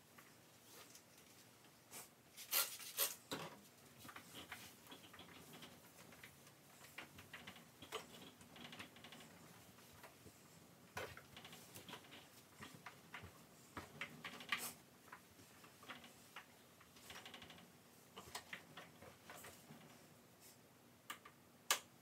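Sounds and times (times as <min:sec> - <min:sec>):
household items clicking and knocking: 0:03.3 - 0:10.2.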